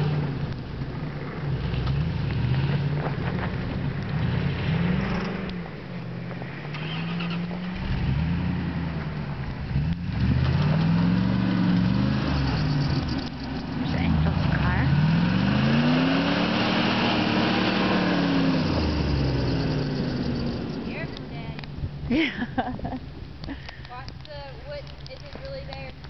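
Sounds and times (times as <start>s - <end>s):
pickup truck engine revving: 6.6s - 21.7s.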